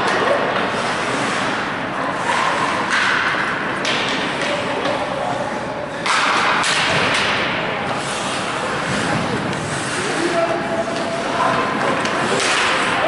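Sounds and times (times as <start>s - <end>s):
crowd noise: 0.0s - 13.0s
stick and puck knocks: 2.9s - 5.0s, 6.0s - 7.6s, 11.8s - 13.0s
skates on ice: 6.0s - 13.0s.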